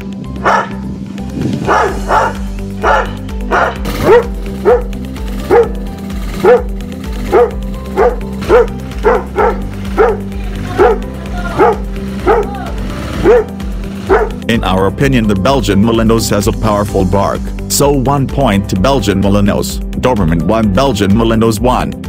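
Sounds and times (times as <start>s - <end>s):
background music: 0.0s - 22.0s
dogs barking: 0.3s - 1.0s, 1.6s - 14.4s.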